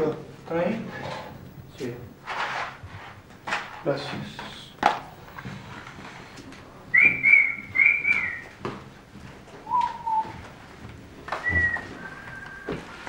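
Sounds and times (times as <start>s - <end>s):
person whistling held notes: 6.9s - 8.5s, 9.6s - 10.4s, 11.4s - 13.0s.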